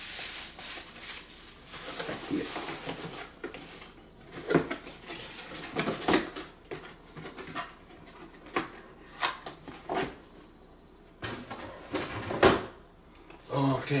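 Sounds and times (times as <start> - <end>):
packaging rustling and scraping: 0.0 - 8.9.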